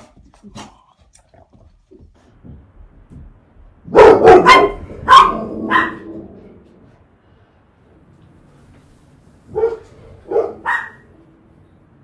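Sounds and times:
dog barking: 0:03.9 - 0:06.2, 0:09.5 - 0:11.2.

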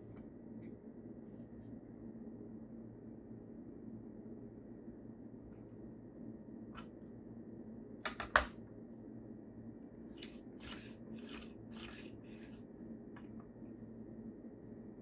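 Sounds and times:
toy car rolling on table: 0:10.2 - 0:12.6.

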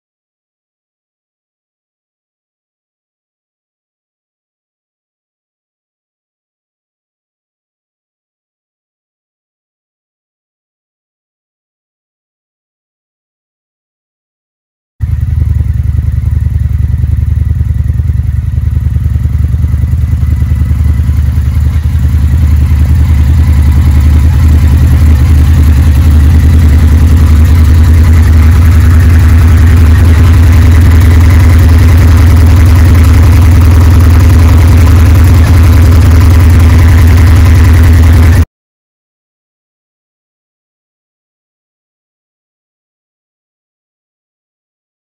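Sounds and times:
motorcycle engine idling: 0:15.0 - 0:38.5.

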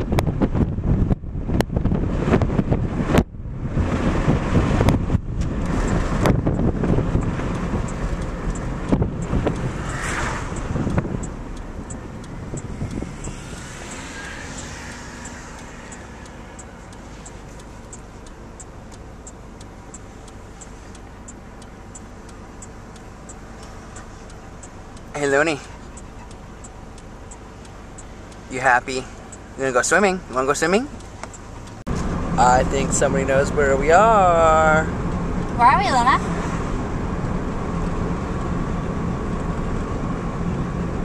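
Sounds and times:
wind buffeting microphone: 0:00.0 - 0:17.0
road rumble: 0:00.0 - 0:41.0
light regular ticking: 0:04.8 - 0:39.9.

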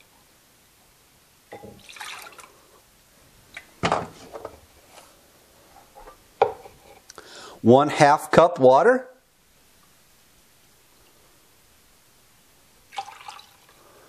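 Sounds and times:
liquid splashing into bowl: 0:01.5 - 0:02.5, 0:12.9 - 0:13.7
objects clunking on counter: 0:06.0 - 0:07.0.

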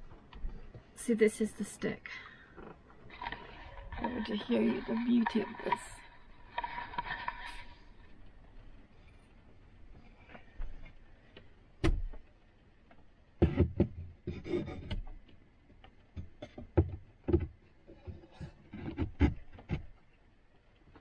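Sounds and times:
wooden worktop knocks and clunks: 0:13.4 - 0:15.1, 0:16.2 - 0:19.9.

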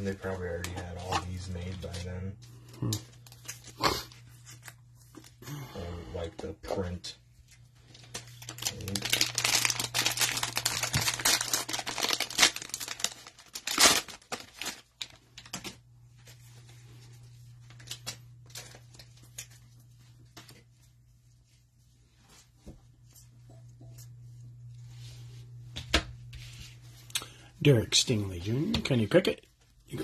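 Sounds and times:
foil wrapper crinkling: 0:00.5 - 0:05.4, 0:07.5 - 0:20.5
foil wrapper ripping: 0:02.8 - 0:04.8, 0:07.9 - 0:15.8, 0:17.7 - 0:19.6.

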